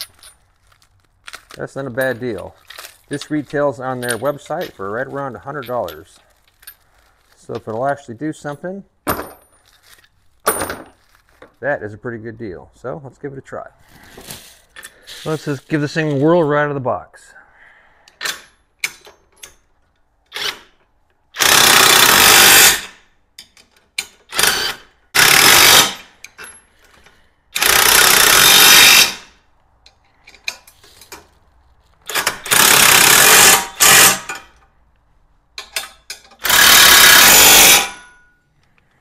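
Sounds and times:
impact wrench hammering: 0:35.6 - 0:38.2.

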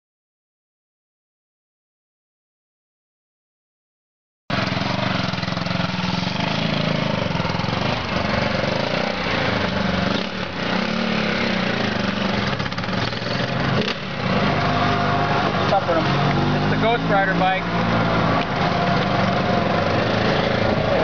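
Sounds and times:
motorcycle engine revving: 0:04.5 - 0:21.0.

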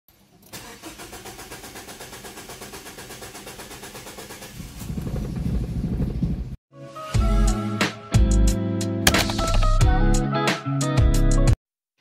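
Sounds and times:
car engine cranking and starting: 0:00.2 - 0:04.8.

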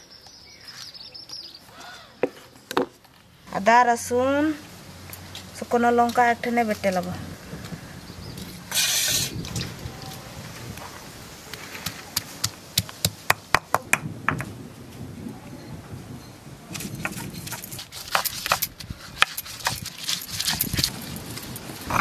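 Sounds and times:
stone roller grinding and scraping: 0:08.7 - 0:09.6, 0:16.8 - 0:22.0.

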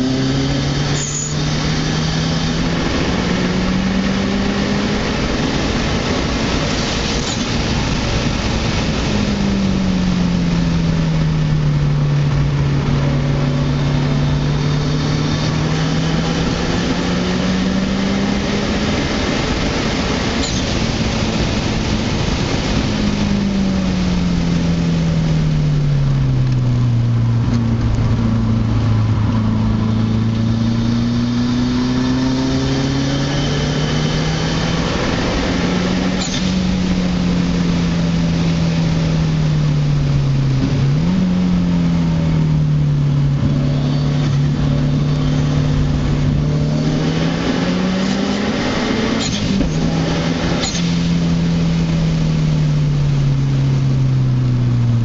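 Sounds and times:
car engine at speed: 0:00.0 - 0:55.0
brief high squeaks: 0:01.0 - 0:01.4, 0:07.2 - 0:07.6, 0:20.4 - 0:20.8, 0:36.2 - 0:36.6, 0:49.2 - 0:49.6, 0:50.6 - 0:51.0.

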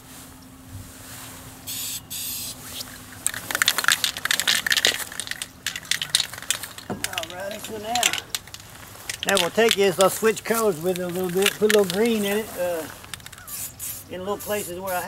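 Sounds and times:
spray paint can hissing: 0:01.7 - 0:15.0
crackling and rustling: 0:02.5 - 0:14.6.

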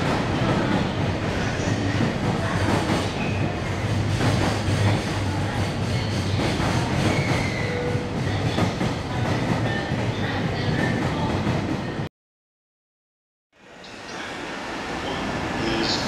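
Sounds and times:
freight train wheels rumbling: 0:00.0 - 0:12.1.

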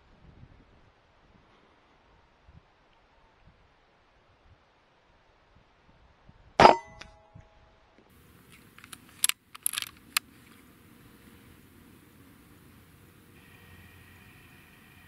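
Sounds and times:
air rifle shot: 0:06.6 - 0:07.0
rifle action metallic clicks: 0:08.5 - 0:10.3.

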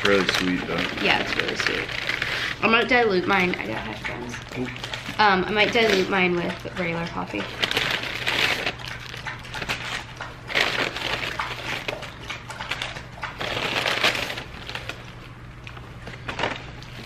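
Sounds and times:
paper bag rustling and crinkling: 0:00.0 - 0:03.5, 0:07.5 - 0:12.1, 0:13.4 - 0:17.0.

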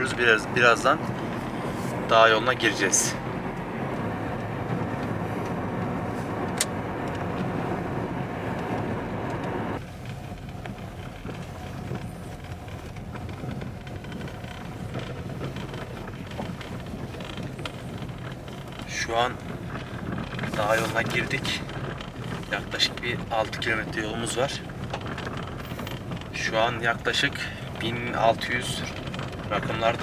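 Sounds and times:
car engine and tyre rumble: 0:00.0 - 0:30.0.

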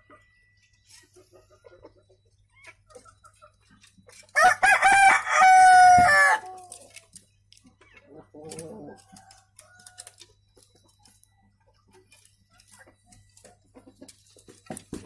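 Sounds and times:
faint chicken clucks: 0:00.0 - 0:14.6
rooster crowing: 0:04.4 - 0:06.6.

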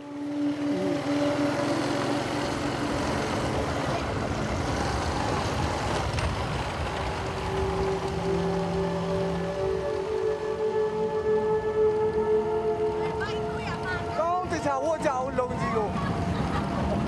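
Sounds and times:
motorcycle engine running: 0:00.0 - 0:10.2
wind and road noise: 0:00.0 - 0:17.0.

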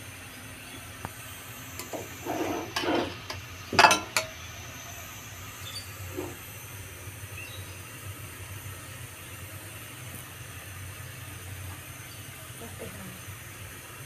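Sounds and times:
metal scrape and clink: 0:01.8 - 0:04.4, 0:06.1 - 0:06.4
metal spatula scraping rice in wok: 0:01.8 - 0:04.4, 0:06.1 - 0:06.4.

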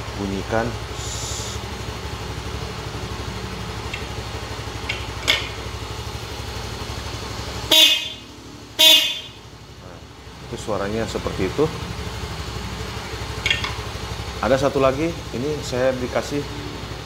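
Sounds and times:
low steady drone: 0:00.0 - 0:03.8
motorcycle horn blasts: 0:07.6 - 0:09.5.

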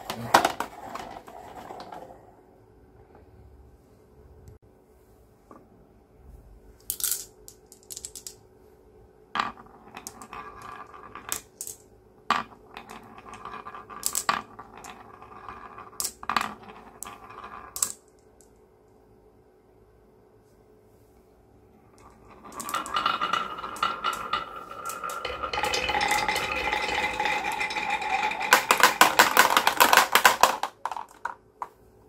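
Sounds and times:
glass marbles rolling on wood: 0:09.4 - 0:18.0, 0:21.9 - 0:31.7
marbles clacking together: 0:12.4 - 0:18.1, 0:22.0 - 0:31.4.

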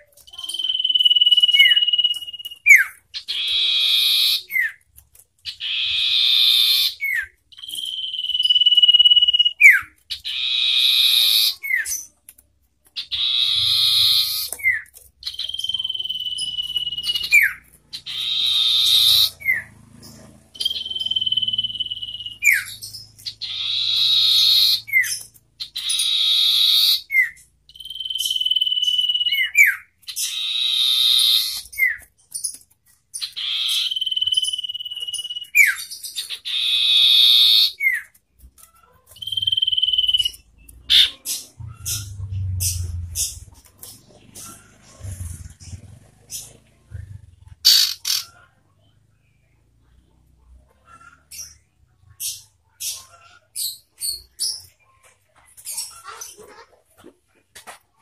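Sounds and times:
bird harsh rasping calls: 0:00.2 - 0:04.8, 0:05.5 - 0:12.1, 0:13.0 - 0:32.1, 0:33.1 - 0:48.6.

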